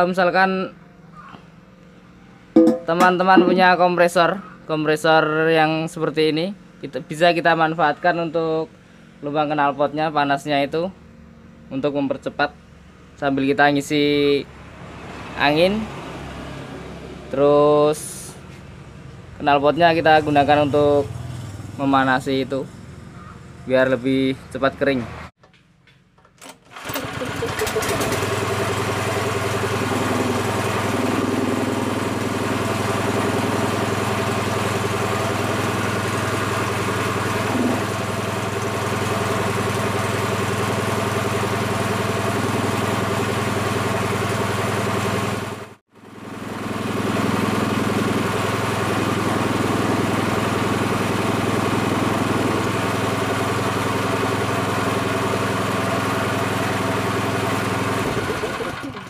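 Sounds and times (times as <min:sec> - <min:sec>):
air compressor petrol engine running: 0:26.6 - 0:59.0.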